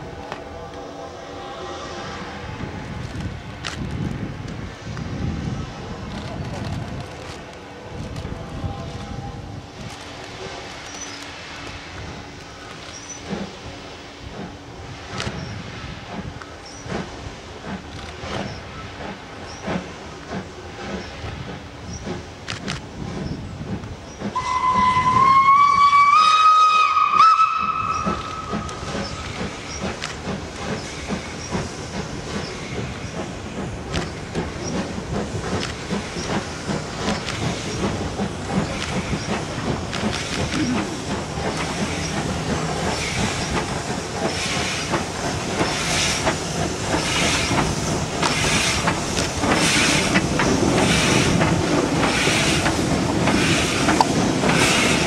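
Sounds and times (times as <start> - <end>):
hiss of steam: 0.0 - 6.3, 7.6 - 55.0
steam locomotive exhaust beats: 0.0 - 55.0
steam whistle blast: 24.4 - 28.9.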